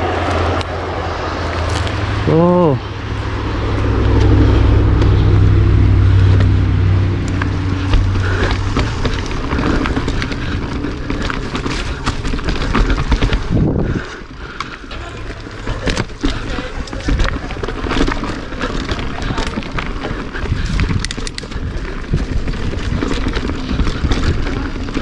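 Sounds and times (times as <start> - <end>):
bike tyres humming on dirt: 0.0 - 25.0
bike rattling and knocking: 3.7 - 25.0
wind on microphone: 12.7 - 14.2, 20.0 - 25.0.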